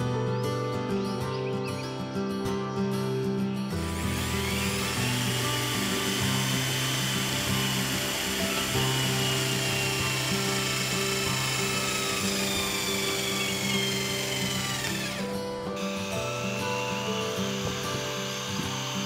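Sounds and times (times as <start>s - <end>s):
background music: 0.0s - 19.0s
electric drill whining: 3.7s - 19.0s.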